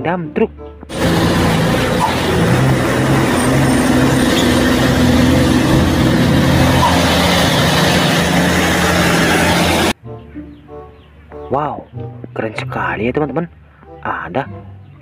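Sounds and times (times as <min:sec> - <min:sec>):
diesel truck engine droning: 0:00.9 - 0:10.0.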